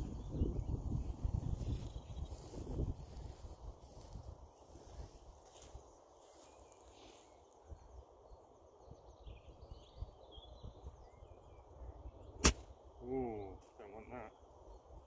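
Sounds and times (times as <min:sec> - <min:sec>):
wind rumble on microphone: 0:00.0 - 0:05.8, 0:08.8 - 0:12.4
faint bird chirps: 0:00.1 - 0:04.0, 0:04.8 - 0:15.0.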